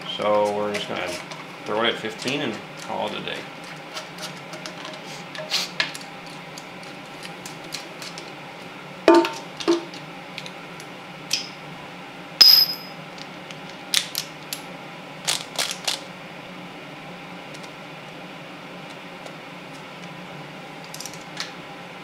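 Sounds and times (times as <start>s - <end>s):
ringing metal clink: 12.4s - 13.0s.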